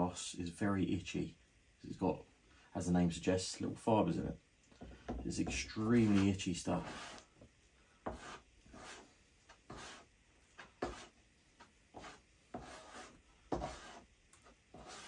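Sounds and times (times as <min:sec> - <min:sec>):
spreader scraping paste on board: 0:05.4 - 0:07.3, 0:08.1 - 0:11.2, 0:11.9 - 0:14.1, 0:14.7 - 0:15.0.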